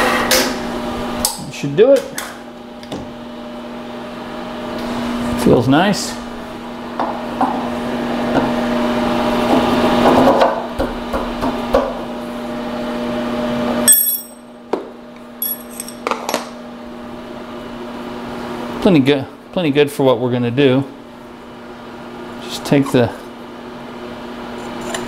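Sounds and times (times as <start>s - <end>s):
metal clinks and knocks: 13.9s - 14.4s, 15.4s - 16.1s.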